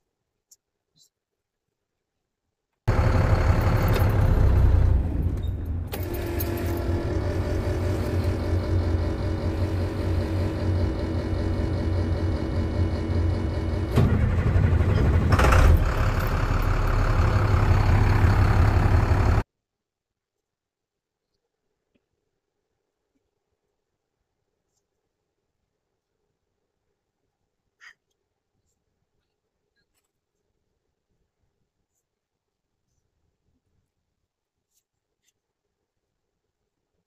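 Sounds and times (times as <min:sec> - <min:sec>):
diesel truck engine running: 0:02.9 - 0:19.4
steady whine: 0:02.9 - 0:19.4.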